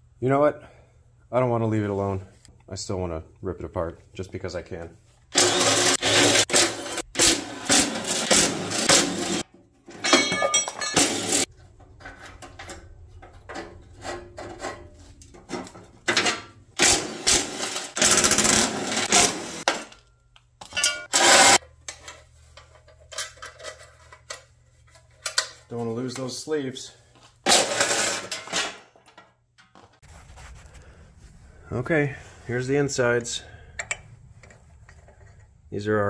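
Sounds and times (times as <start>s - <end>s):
cordless power driver whirring: 5.4s - 7.6s
loose metal parts clinking: 9.8s - 16.6s, 19.6s - 26.4s, 27.5s - 29.8s.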